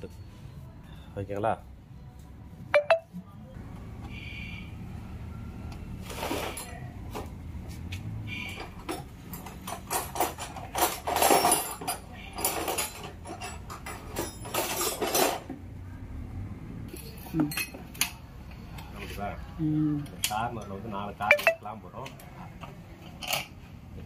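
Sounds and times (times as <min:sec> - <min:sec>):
metal tools clinking and knocking: 0:08.5 - 0:15.5, 0:20.2 - 0:22.2.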